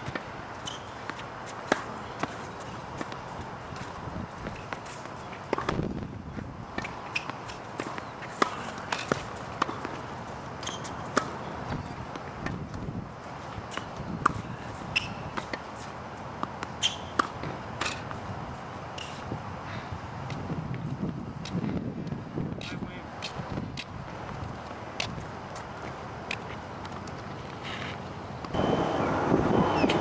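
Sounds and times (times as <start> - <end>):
racket hitting ball: 0.0 - 6.0, 6.7 - 12.8, 13.6 - 15.8, 16.4 - 18.2
tennis balls bouncing: 0.0 - 19.4, 20.2 - 20.8, 21.4 - 27.6.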